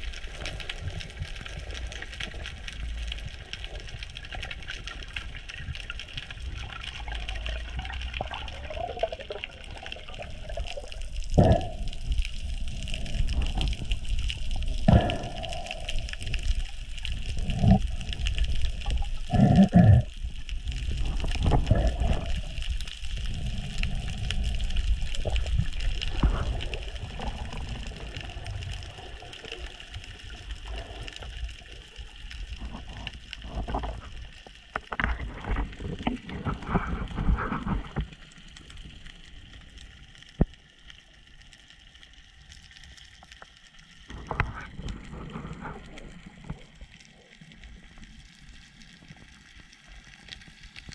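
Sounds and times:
water rushing and gurgling: 0.0 - 50.9
water bubbling bursts: 4.2 - 31.4.

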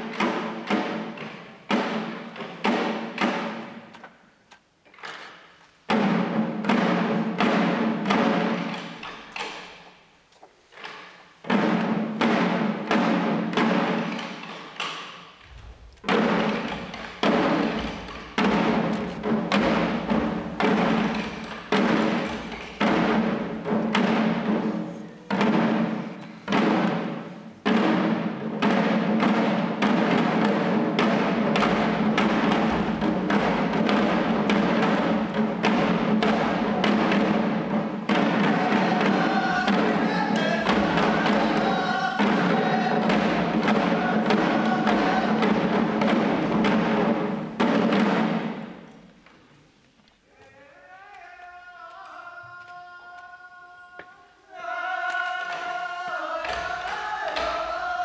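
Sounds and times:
taiko drums beaten: 0.0 - 3.9, 5.9 - 9.8, 11.4 - 48.9, 54.7 - 58.0.

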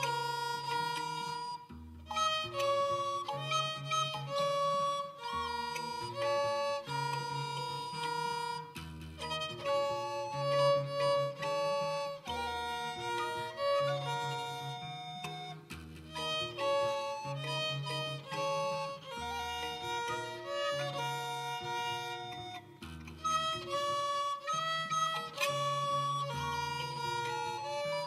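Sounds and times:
recorder: 0.0 - 28.0
violin: 0.0 - 28.0.

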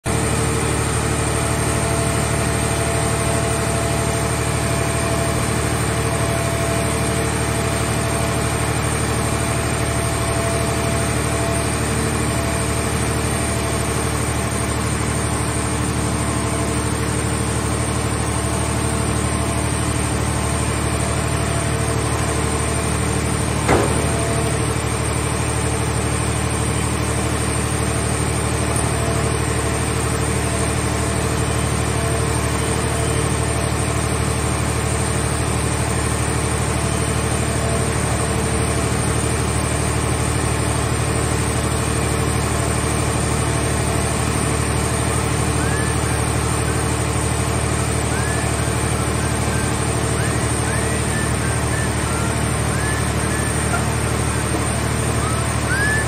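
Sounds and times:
hydraulic power unit droning: 0.1 - 56.0
sharp knock: 23.7 - 24.4.

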